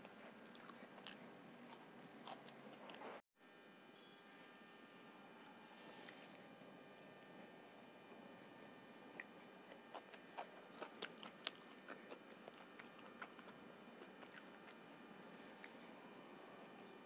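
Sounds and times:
chewing crisp food: 0:00.0 - 0:03.2, 0:09.2 - 0:16.0
wet mouth clicks: 0:10.8 - 0:14.8.

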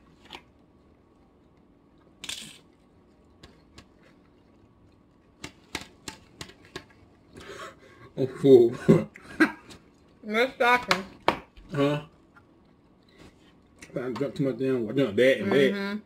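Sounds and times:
chip crunching: 0:02.0 - 0:02.8.

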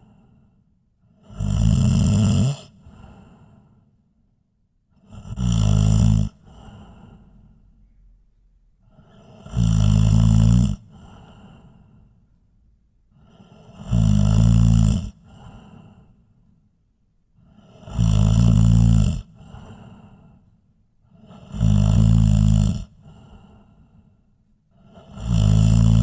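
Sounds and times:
person snoring loudly: 0:01.2 - 0:03.3, 0:05.0 - 0:07.4, 0:08.9 - 0:11.8, 0:13.2 - 0:15.8, 0:17.4 - 0:20.2, 0:21.1 - 0:23.7, 0:24.8 - 0:26.0.

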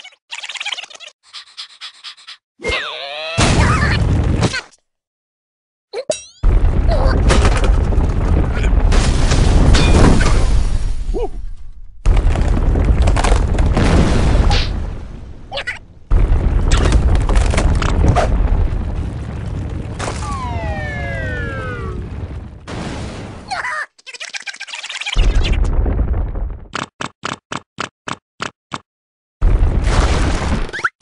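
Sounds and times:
ground cracking and crashing: 0:03.4 - 0:04.5, 0:06.4 - 0:24.4, 0:25.0 - 0:26.8, 0:29.4 - 0:30.8
deep earthquake rumbling: 0:06.4 - 0:23.5, 0:25.2 - 0:26.7, 0:29.4 - 0:30.6.

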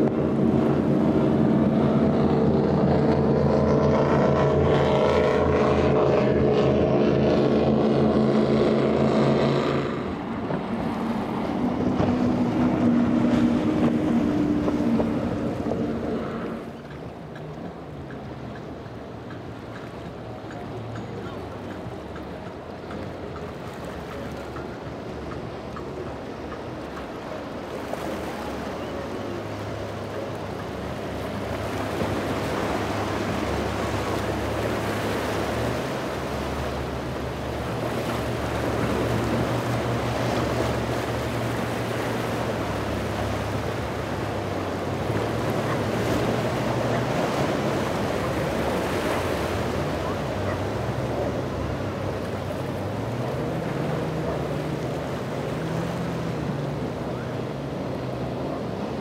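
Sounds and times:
boat engines droning: 0:00.0 - 0:59.0
rushing wake and waves: 0:00.0 - 0:59.0.

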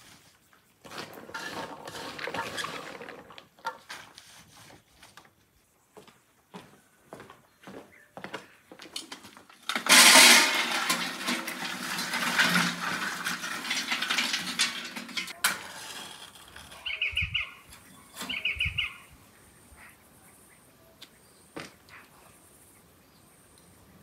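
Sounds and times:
charcoal clattering into metal drum: 0:00.8 - 0:04.1, 0:09.0 - 0:16.8.

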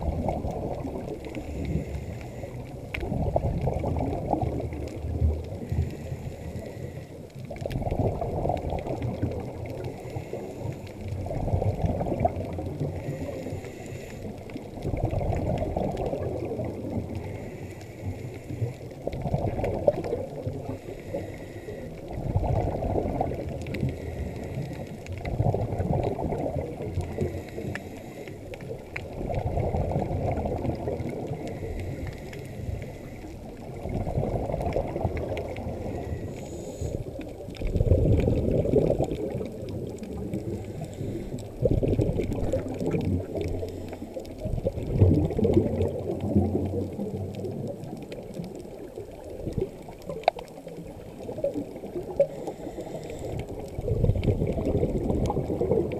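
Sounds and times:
bubbles gurgling underwater: 0:00.0 - 0:55.9.

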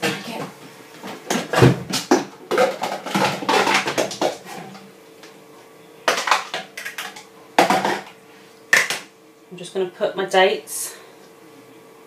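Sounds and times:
plastic containers knocking: 0:01.3 - 0:04.4.

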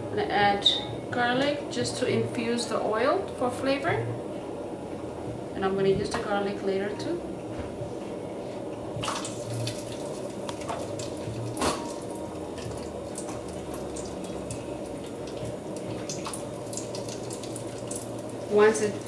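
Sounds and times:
garlic frying in oil: 0:09.0 - 0:19.0.

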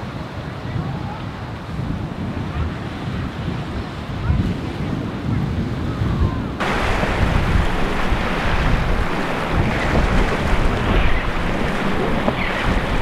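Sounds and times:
waves and surf rushing: 0:00.0 - 0:13.0
wind buffeting microphone: 0:00.1 - 0:13.0.

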